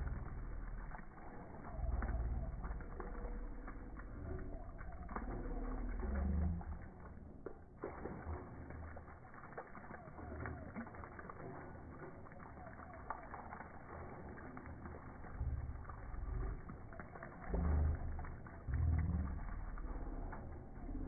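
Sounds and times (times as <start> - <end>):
low rumble: 0.0 - 21.0
water splashing on concrete: 0.0 - 21.0.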